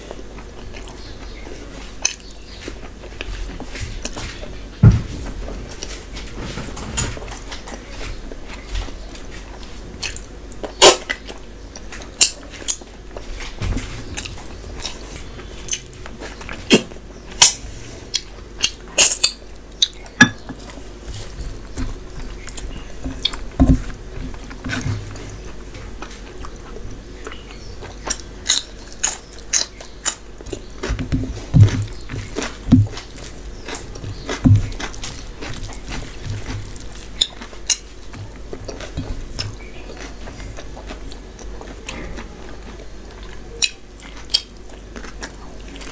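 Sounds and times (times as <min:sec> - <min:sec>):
chewing and lip smacks: 0:31.5 - 0:45.9.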